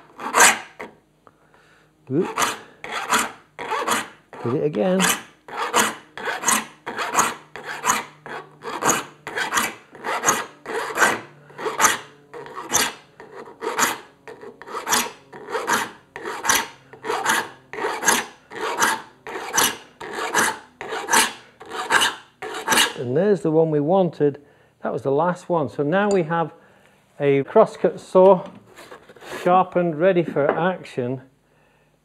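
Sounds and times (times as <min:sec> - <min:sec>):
file rasping on saw teeth: 0:00.0 - 0:00.9, 0:02.1 - 0:23.0.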